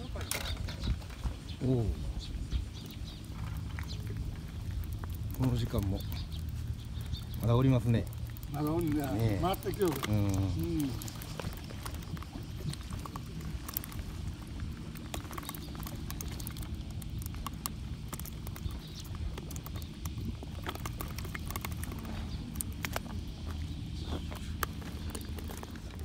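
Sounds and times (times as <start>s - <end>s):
steady low rumble: 0.0s - 26.0s
fishing line clicks and taps: 3.6s - 23.2s.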